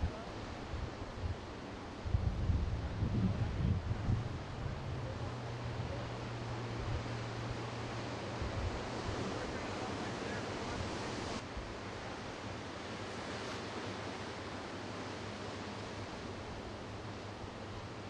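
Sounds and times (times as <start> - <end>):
ocean surf: 0.0 - 18.0
wind on microphone: 2.0 - 7.6, 8.3 - 9.7.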